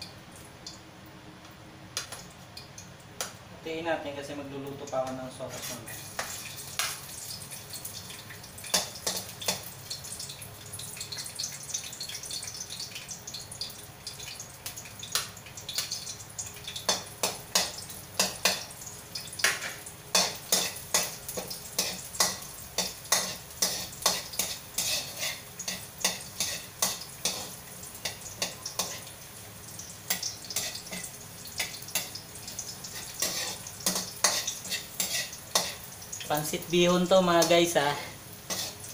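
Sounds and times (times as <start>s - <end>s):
garlic sizzling in a wok: 2.6s - 38.9s.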